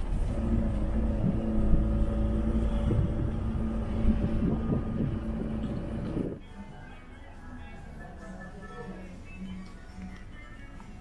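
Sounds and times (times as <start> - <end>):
road rumble: 0.0 - 6.4
van engine drone: 0.0 - 6.4.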